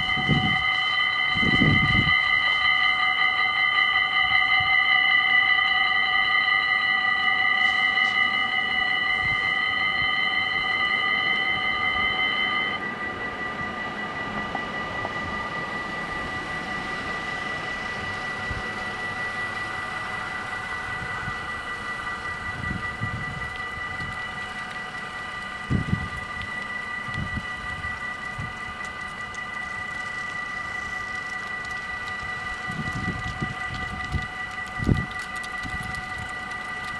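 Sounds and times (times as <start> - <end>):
level crossing warning bells ringing: 0.0 - 36.9
cars driving across: 10.5 - 35.6.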